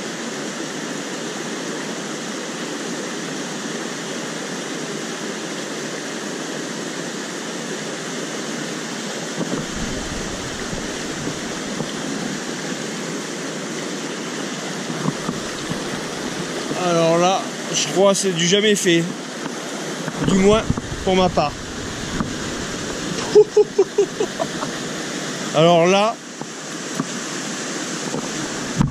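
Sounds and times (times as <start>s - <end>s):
stream rushing over rocks: 0.0s - 28.9s
low rumble: 9.6s - 11.9s, 20.2s - 23.2s.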